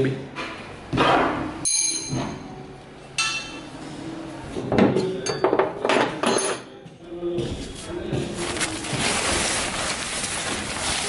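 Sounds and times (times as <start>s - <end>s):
metal clinks and knocks: 1.7s - 2.5s
metal strikes ringing: 1.7s - 3.6s.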